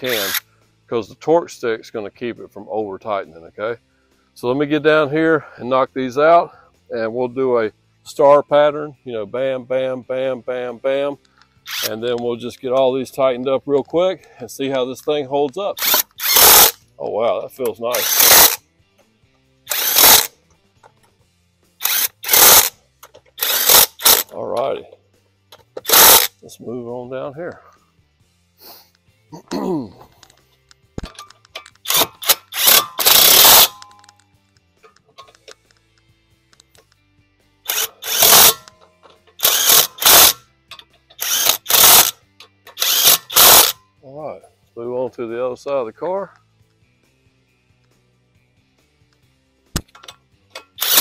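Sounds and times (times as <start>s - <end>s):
impact wrench hammering: 15.8s - 16.8s, 18.0s - 18.6s, 19.7s - 20.3s, 21.9s - 22.7s, 25.8s - 26.3s, 31.0s - 34.0s, 37.7s - 43.8s, 49.8s - 51.0s.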